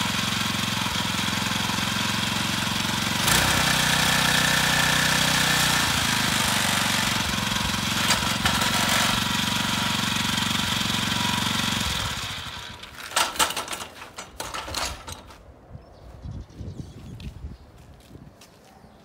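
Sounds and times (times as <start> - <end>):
small petrol engine rattling: 0.0 - 15.4
sharp clicks and knocks: 13.0 - 15.4.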